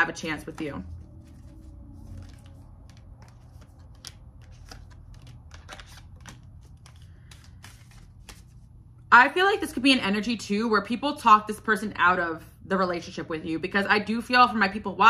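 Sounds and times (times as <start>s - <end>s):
low steady hum: 0.0s - 15.0s
cards being shuffled: 0.3s - 8.7s.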